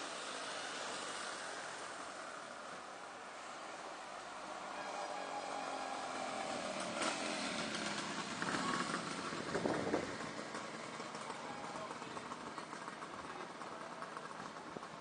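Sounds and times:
motorcycle passing: 0.0s - 15.0s
vehicle engine and road noise: 0.0s - 15.0s.

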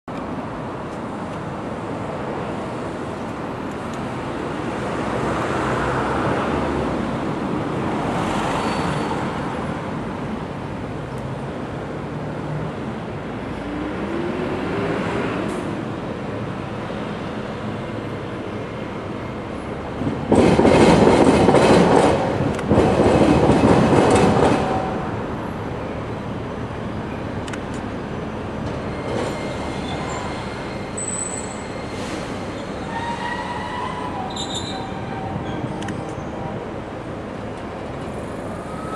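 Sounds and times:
street traffic: 0.1s - 38.9s
tram wheels clattering over crossing: 17.2s - 27.4s.

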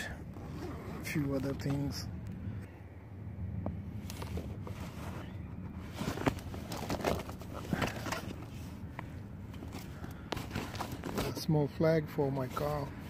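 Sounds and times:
steady low rumble: 0.0s - 13.0s
hands rummaging through bag: 4.0s - 11.5s.

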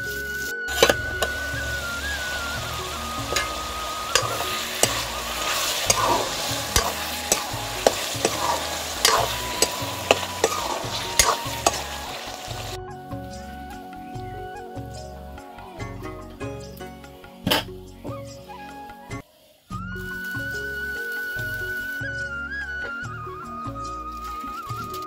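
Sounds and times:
food sizzling in a pan: 0.0s - 13.9s, 19.2s - 22.3s.

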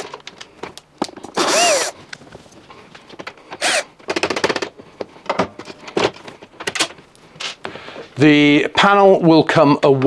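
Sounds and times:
cordless screwdriver whirring: 1.4s - 2.0s, 3.6s - 3.9s.

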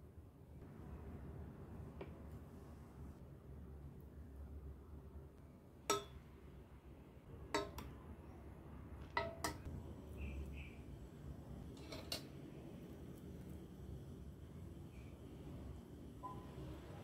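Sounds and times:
low room hum: 0.0s - 17.0s
metal ladle clinking on bowls: 5.9s - 6.2s, 7.6s - 7.9s, 9.1s - 9.7s, 11.8s - 12.4s.

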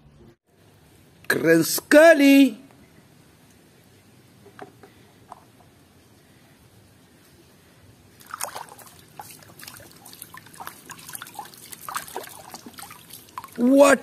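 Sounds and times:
hand splashing in water: 8.2s - 13.6s.

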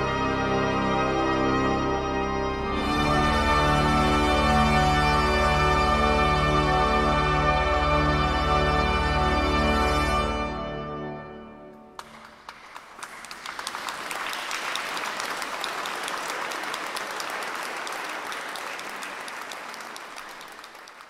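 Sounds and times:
audience applause: 12.0s - 21.0s.

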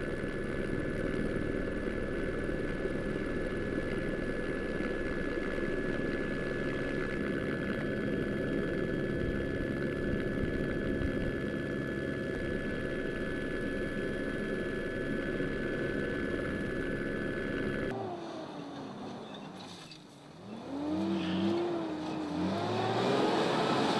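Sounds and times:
high whine: 0.0s - 18.2s
heavy engine running under load: 0.0s - 23.9s.

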